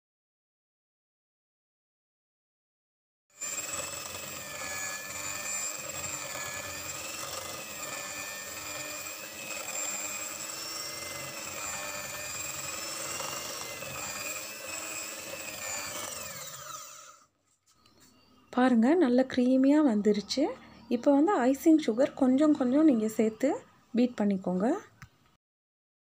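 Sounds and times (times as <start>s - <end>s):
electric hand mixer whipping cream: 3.4s - 17.3s.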